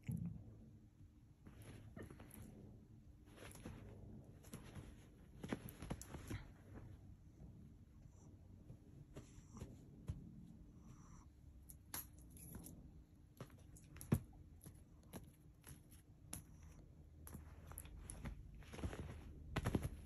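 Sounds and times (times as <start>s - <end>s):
fabric rustling: 1.4s - 7.3s, 17.3s - 20.0s
soft paw taps: 13.4s - 20.0s.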